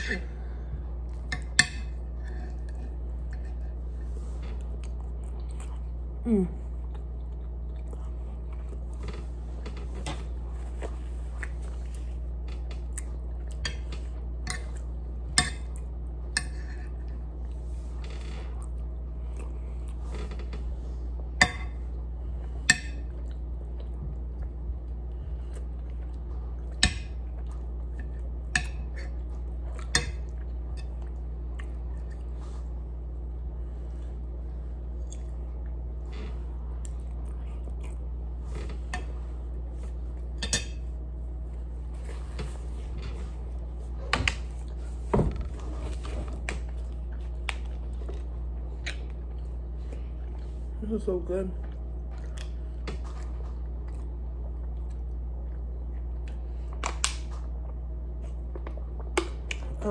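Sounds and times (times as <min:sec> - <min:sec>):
steady low hum: 0:00.0 - 0:59.9
quiet chewing: 0:00.4 - 0:50.8, 0:51.6 - 0:59.8.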